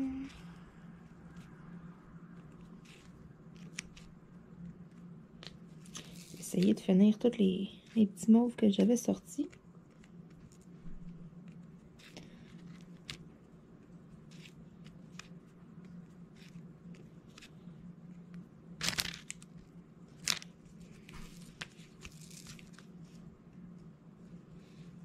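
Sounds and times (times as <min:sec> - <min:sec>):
low steady hum: 0:00.0 - 0:25.0
crinkly scrapes: 0:18.8 - 0:23.3.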